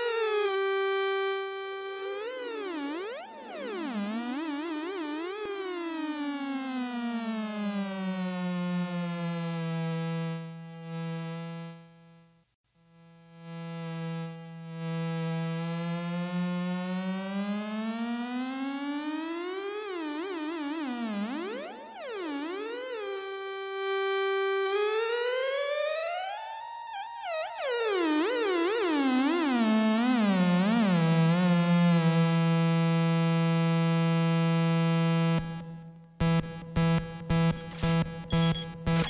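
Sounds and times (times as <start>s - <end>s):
synthesizer tone gliding in pitch: 37.3s - 39.0s.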